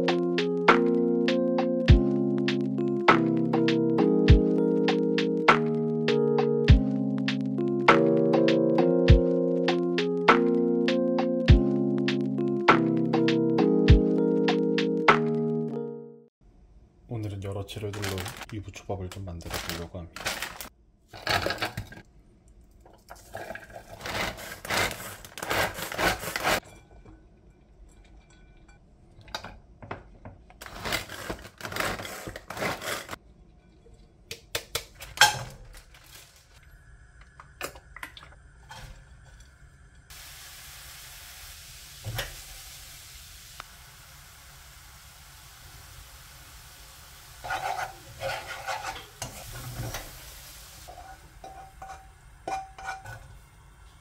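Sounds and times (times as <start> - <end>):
dishes and utensils clattering: 26.6 - 30.2, 47.4 - 50.1, 50.9 - 53.4
food sizzling in a pan: 38.6 - 54.0.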